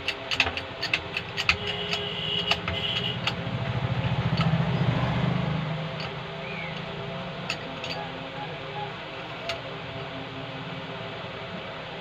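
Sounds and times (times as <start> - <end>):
hand pump clicks and knocks: 0.0 - 3.4, 4.3 - 4.6
low buzzing drone: 1.6 - 12.0.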